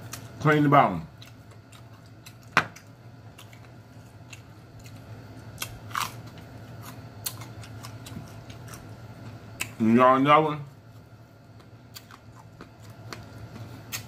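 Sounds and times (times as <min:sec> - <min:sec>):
low steady hum: 0:00.0 - 0:14.0
chewing: 0:03.3 - 0:09.8, 0:11.6 - 0:14.0
crunch of biting a pepper: 0:05.6 - 0:08.9.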